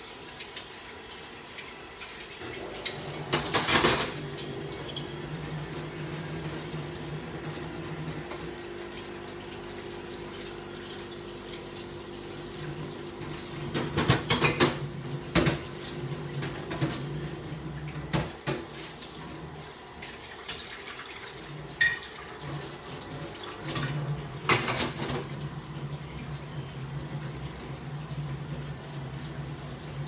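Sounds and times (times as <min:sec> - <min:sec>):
running tap water: 0:00.0 - 0:30.0
dishes and cutlery clattering: 0:02.4 - 0:04.2, 0:13.6 - 0:15.7, 0:21.8 - 0:22.2, 0:23.6 - 0:25.3.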